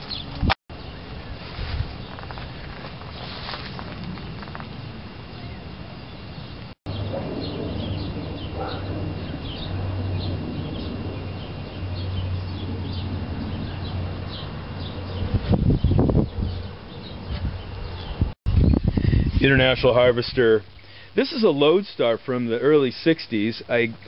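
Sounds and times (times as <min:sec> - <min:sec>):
small birds chirping: 0:00.0 - 0:01.2, 0:05.3 - 0:19.5.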